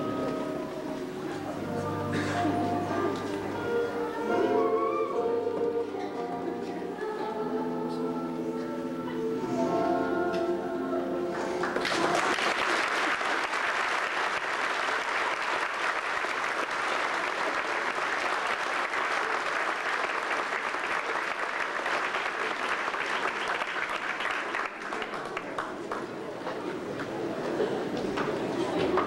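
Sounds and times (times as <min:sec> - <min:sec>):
music: 0:00.0 - 0:12.6
audience applause: 0:11.6 - 0:26.3.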